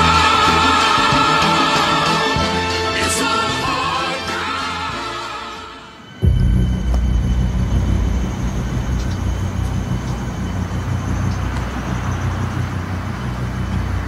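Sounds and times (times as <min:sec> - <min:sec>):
deep rumbling drone: 0:06.2 - 0:14.0.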